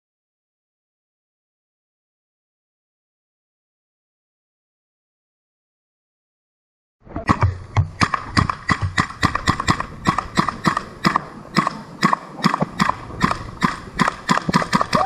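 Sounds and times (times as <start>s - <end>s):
rapid sharp clacks: 7.3s - 15.0s.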